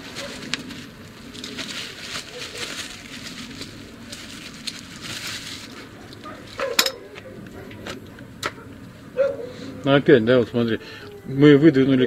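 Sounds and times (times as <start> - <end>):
greasy scraping and crackling: 0.0 - 8.2.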